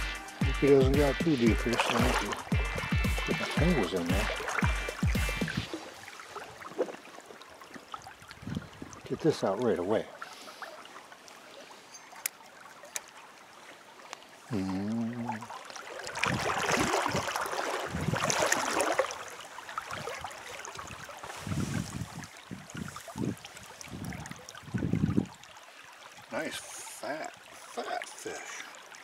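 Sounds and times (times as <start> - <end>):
stream flowing: 0.0 - 29.0
fish splashing in water: 1.4 - 9.0, 15.3 - 26.2.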